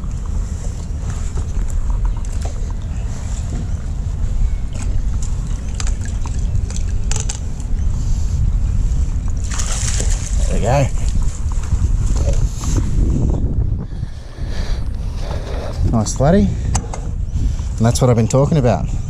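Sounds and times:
wind rumble on microphone: 0.0s - 19.0s
light water splashes: 9.3s - 10.6s.

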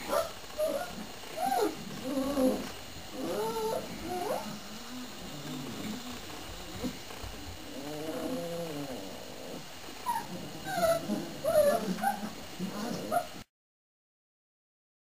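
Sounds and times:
puppies grunting: 0.0s - 13.5s
puppies whining and squeaking: 0.1s - 4.6s, 10.0s - 13.4s.

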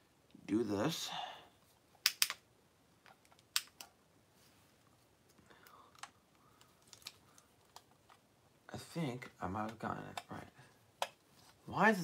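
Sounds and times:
plastic toy parts clicking: 2.0s - 2.4s, 3.0s - 4.0s.

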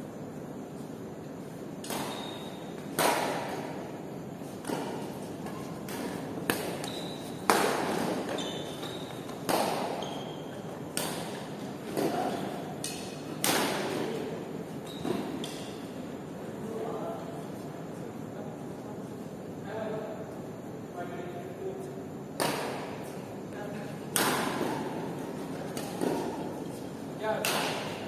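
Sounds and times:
racket hitting shuttlecock: 1.8s - 14.1s, 22.4s - 23.0s, 24.1s - 28.0s
shoes squeaking on court floor: 2.0s - 2.9s, 4.4s - 12.8s, 14.7s - 15.9s.

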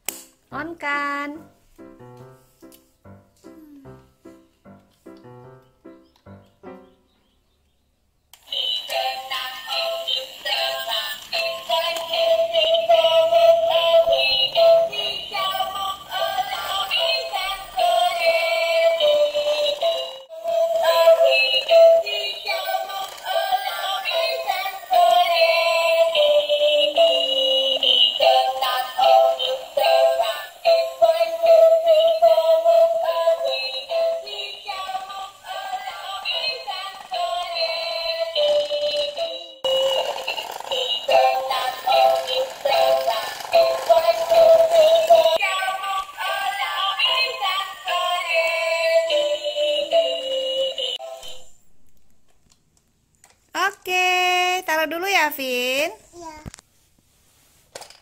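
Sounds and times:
toy electronic melody: 18.1s - 45.4s.

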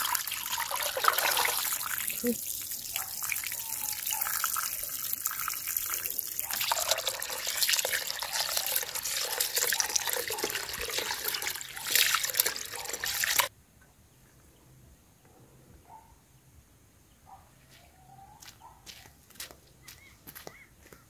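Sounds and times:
water pouring from a hose: 0.0s - 13.5s.

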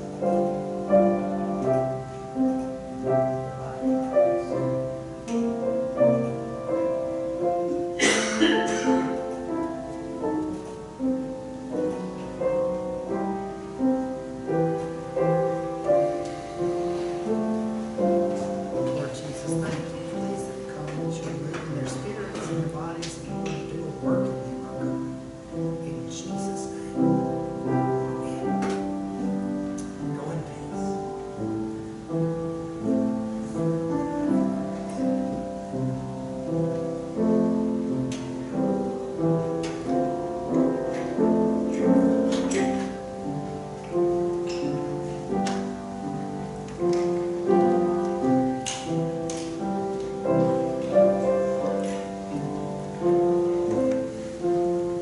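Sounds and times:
piano chords ringing: 0.0s - 55.0s.

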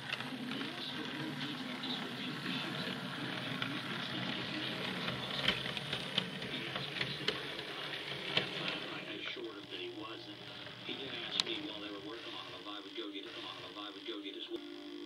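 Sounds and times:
wheels clicking on rails: 0.0s - 9.2s
model train motor whirr: 0.0s - 12.6s.

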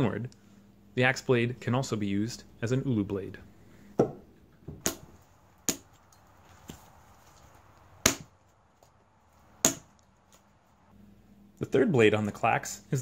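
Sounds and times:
axe chopping strikes: 4.8s - 6.0s, 8.0s - 8.4s, 9.6s - 9.9s.

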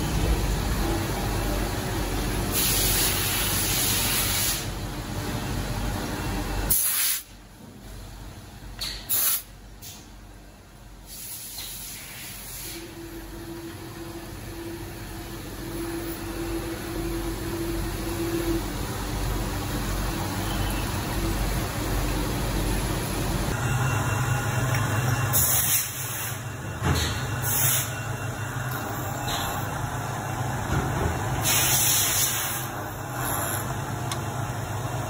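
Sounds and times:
coolant spraying hiss: 2.5s - 4.7s, 6.7s - 7.3s, 31.4s - 33.4s.

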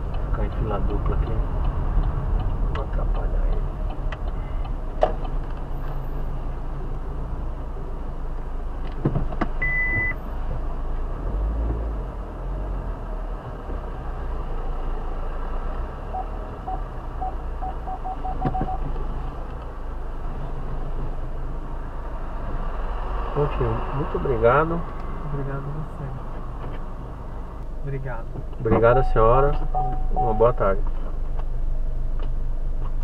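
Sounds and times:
short electronic beeps: 9.6s - 10.2s, 16.1s - 18.8s, 28.9s - 30.6s.

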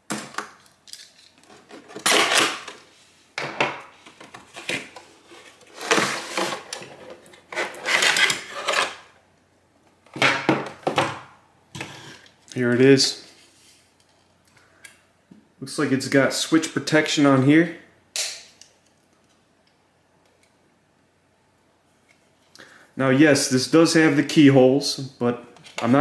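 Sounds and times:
cardboard rustling and scraping: 3.9s - 9.0s.

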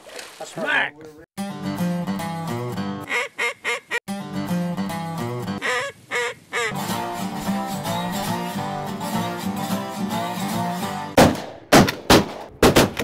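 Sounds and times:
acoustic guitar music: 1.4s - 3.1s, 4.1s - 5.6s, 6.7s - 11.2s
shotgun shots: 11.2s - 13.0s.

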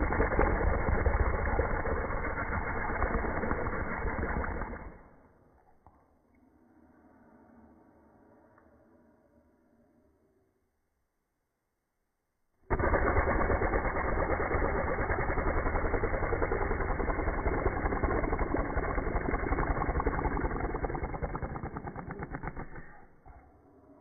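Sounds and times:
slowed lip buzz: 0.0s - 5.4s, 12.7s - 23.4s.

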